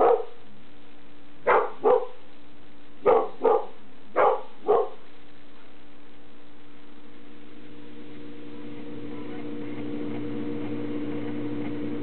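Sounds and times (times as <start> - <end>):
dog barking: 0.0 - 0.4, 1.4 - 2.2, 3.0 - 5.1.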